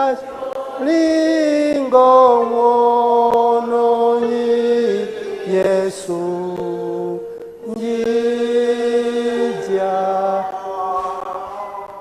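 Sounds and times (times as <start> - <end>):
man singing a hymn unaccompanied: 0.0 - 12.0.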